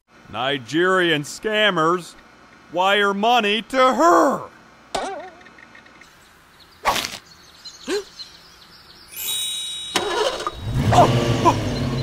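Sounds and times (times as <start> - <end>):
bright ringing high tone: 9.1 - 10.7
sports car engine revving: 10.4 - 12.0.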